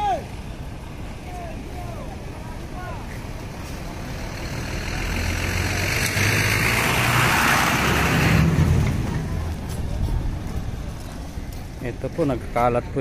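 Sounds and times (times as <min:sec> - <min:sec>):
truck driving past: 0:02.2 - 0:11.4.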